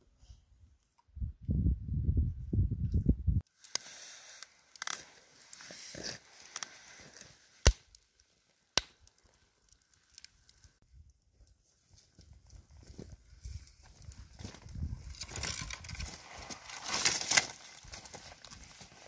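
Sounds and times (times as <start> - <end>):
campfire crackling: 3.5 - 14.1
loud sharp pops: 7.6 - 8.0.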